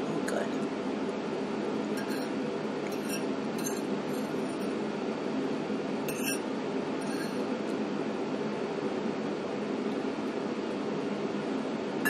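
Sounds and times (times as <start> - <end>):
steady background hum: 0.0 - 12.0
fork clinking on plate: 2.0 - 2.3, 2.9 - 4.6, 6.1 - 6.4.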